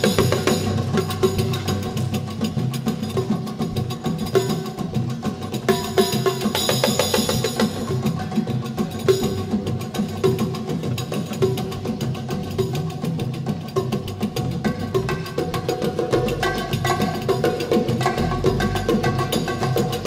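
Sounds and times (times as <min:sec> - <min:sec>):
rapid hand drum strokes: 0:00.0 - 0:20.0
steady pitched notes: 0:16.2 - 0:20.0.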